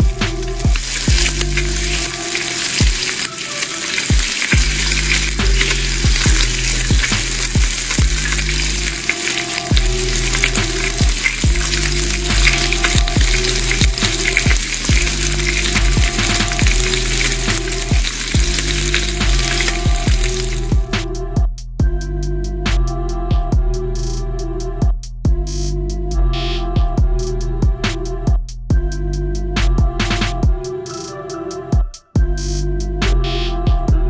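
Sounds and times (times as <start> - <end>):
music beat with deep bass: 0.0 - 3.2, 4.1 - 34.0
food sizzling on griddle: 0.0 - 20.8.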